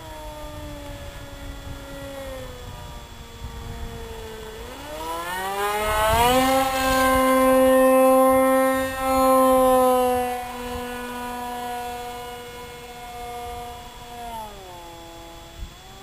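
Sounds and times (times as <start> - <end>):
model plane motor droning: 0.0 - 16.0.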